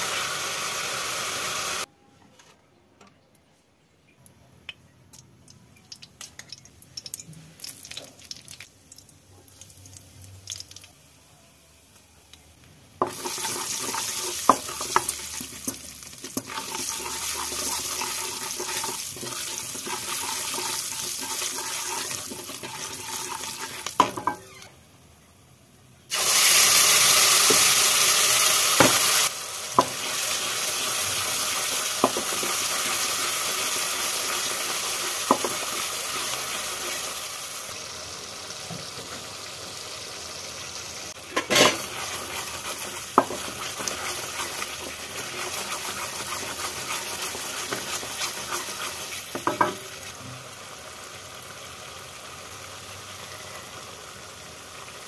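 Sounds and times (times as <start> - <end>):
hot oil sizzling: 0.0 - 1.9, 5.9 - 11.1, 12.8 - 24.7, 26.1 - 55.0
wooden spatula stirring and scraping: 13.0 - 23.9, 41.4 - 49.8.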